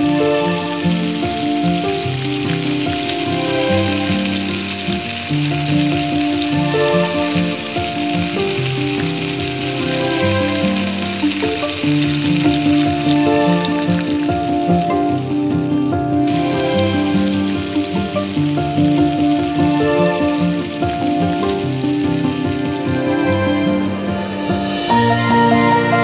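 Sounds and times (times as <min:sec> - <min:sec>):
fish sizzling in hot oil: 0:00.0 - 0:23.9
instrumental background music: 0:00.0 - 0:26.0.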